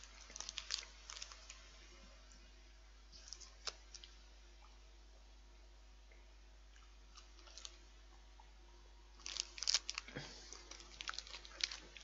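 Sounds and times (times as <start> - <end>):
plastic wrapper crinkling: 0.0 - 1.6, 3.2 - 4.1, 7.2 - 7.8, 9.2 - 12.0.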